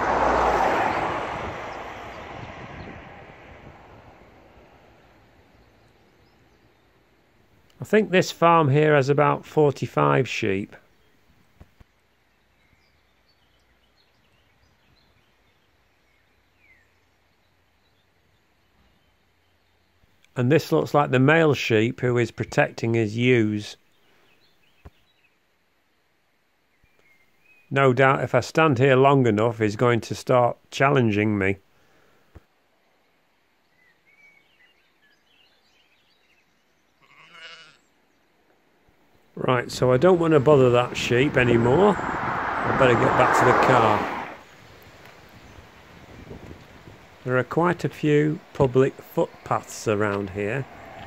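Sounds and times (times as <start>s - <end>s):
distant birdsong: 0.0s - 9.3s, 10.8s - 21.0s, 22.7s - 28.2s, 31.2s - 51.0s
sheep bleating: 37.0s - 37.9s.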